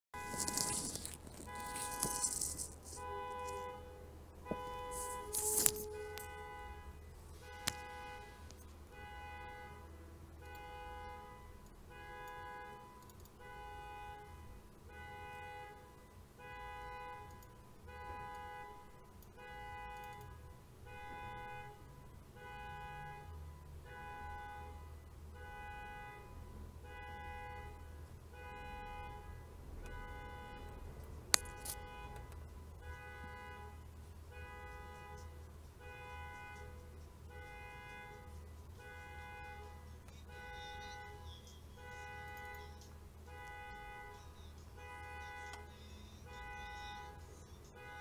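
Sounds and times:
car alarm electronic tones: 0.2 - 3.8, 4.5 - 48.0
sharp clicks: 13.0 - 13.4, 42.2 - 43.6.

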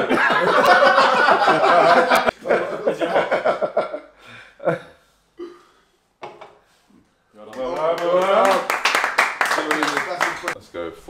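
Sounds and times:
men laughing loudly: 0.0 - 4.9.

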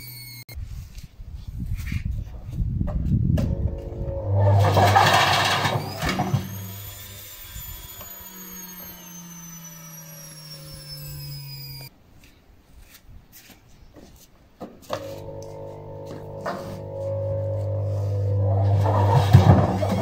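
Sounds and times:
washing machine motor whine: 3.4 - 11.9, 15.0 - 20.0
brick banging in washing machine: 4.4 - 6.4, 18.8 - 20.0.

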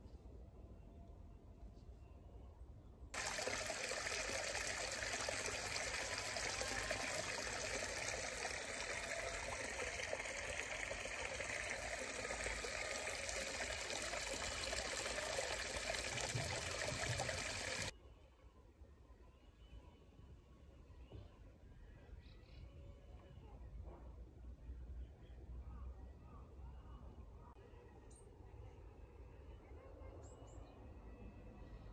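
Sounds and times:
stream trickling over stones: 3.2 - 17.9.

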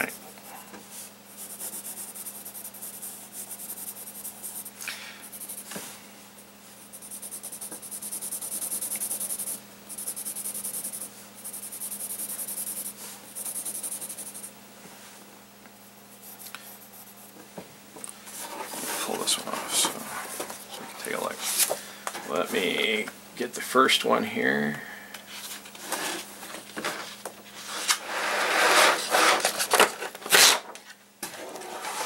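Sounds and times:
pencil scratching on paper: 1.4 - 5.7, 6.8 - 14.5, 15.8 - 17.3.

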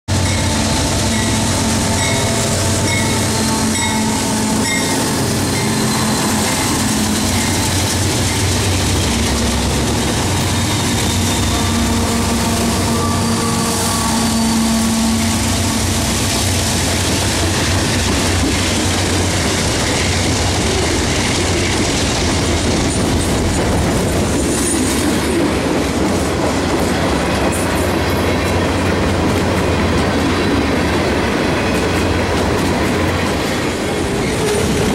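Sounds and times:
diesel locomotive engine drone: 0.1 - 34.9
train wheels rumbling on rails: 0.1 - 34.9.

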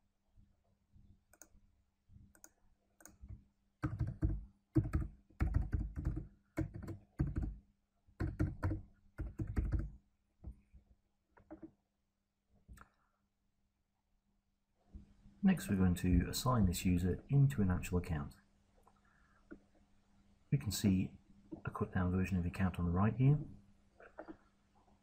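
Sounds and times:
typing on computer keyboard: 2.4 - 7.6, 8.2 - 10.0.

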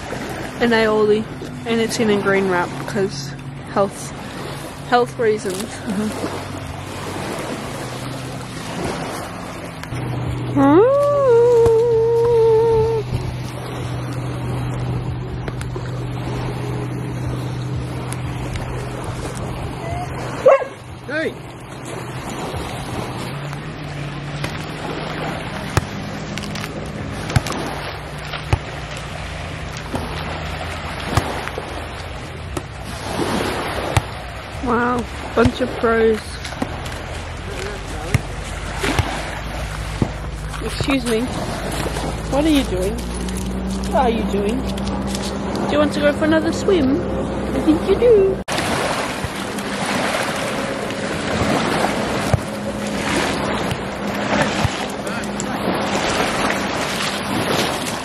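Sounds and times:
boat motor humming: 0.0 - 58.0
water and wind noise: 0.0 - 58.0
wind on microphone: 5.5 - 23.6.

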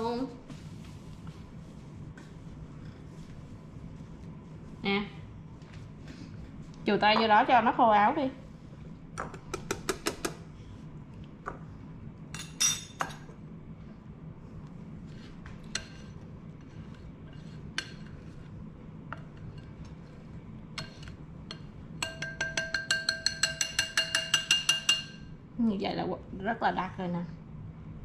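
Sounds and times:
whisk clinking against ceramic bowl: 20.8 - 25.3.

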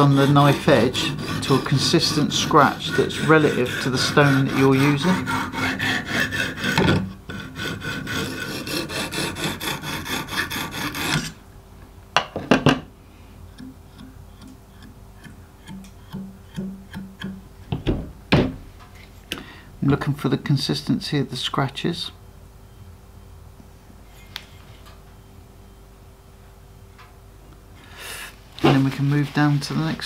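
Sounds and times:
hone rasping on knife edge: 0.0 - 11.4.

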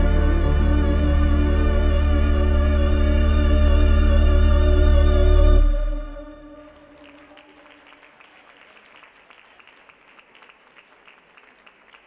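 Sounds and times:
sustained chord of dance music: 0.0 - 7.1
audience applauding: 6.6 - 12.0.

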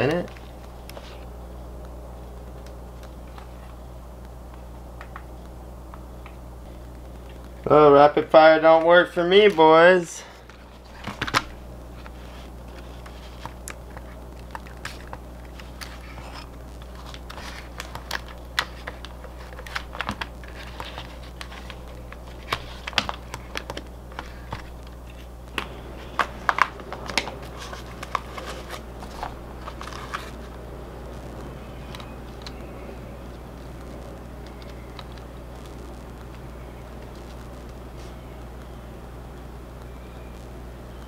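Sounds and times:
steady low hum: 0.0 - 41.0
hands handling plastic goggles: 10.4 - 30.5.

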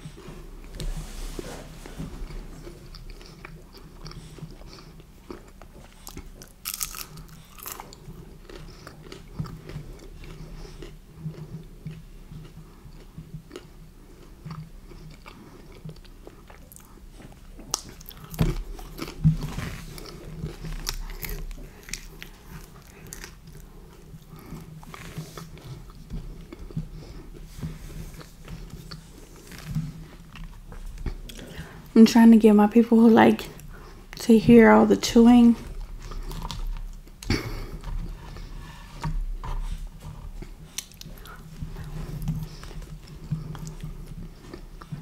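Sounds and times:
person chewing pizza: 0.0 - 31.9, 35.6 - 45.0.

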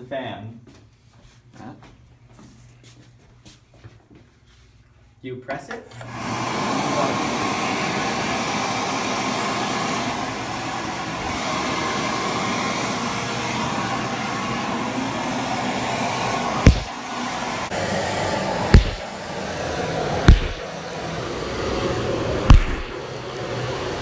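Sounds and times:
electric hand dryer blowing: 5.9 - 24.0
sharp knock: 16.7 - 16.9, 18.7 - 19.1, 20.3 - 20.6, 22.5 - 23.0.

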